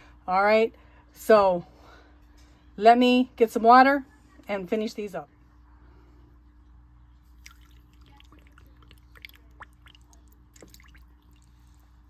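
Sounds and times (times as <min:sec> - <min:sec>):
water trickling into jar: 0:07.4 - 0:12.0.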